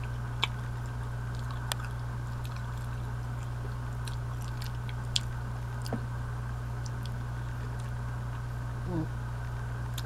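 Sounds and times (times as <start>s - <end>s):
person chewing: 0.0s - 6.0s, 6.8s - 8.0s
steady low hum: 0.0s - 10.0s.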